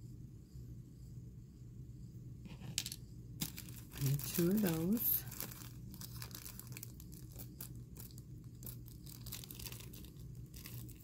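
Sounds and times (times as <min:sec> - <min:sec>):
plastic bag crinkling: 0:03.4 - 0:11.0.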